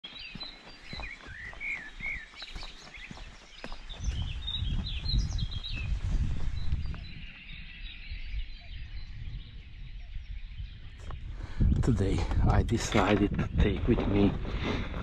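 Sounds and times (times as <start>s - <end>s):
footsteps on dirt track: 0.0s - 7.7s
birds chirping: 0.0s - 15.0s
wind rumble on microphone: 0.8s - 15.0s.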